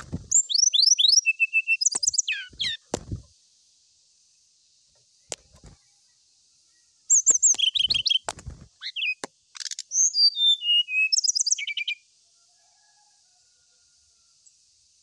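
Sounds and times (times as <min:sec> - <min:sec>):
bird singing varied song: 0:00.0 - 0:03.3, 0:04.3 - 0:12.1.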